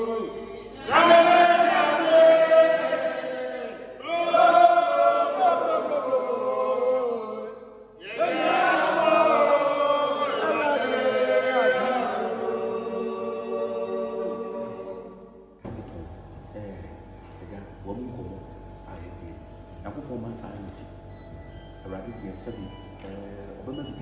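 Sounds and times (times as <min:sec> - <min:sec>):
voices singing a religious chant: 0:00.0 - 0:15.6.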